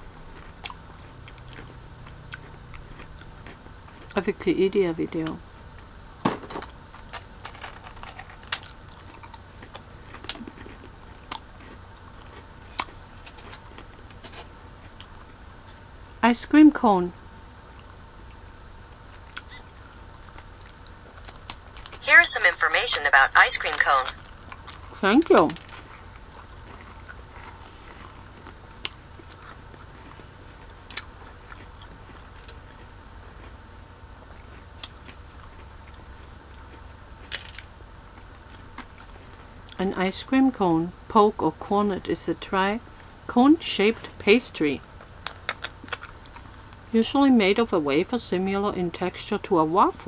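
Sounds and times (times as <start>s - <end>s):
chewing crisp waffle cone: 0.0s - 4.3s, 6.7s - 16.2s, 17.6s - 22.0s, 23.1s - 39.8s, 44.1s - 46.9s
ice cream cone crunching: 6.9s - 15.8s, 19.1s - 22.0s, 44.8s - 46.7s.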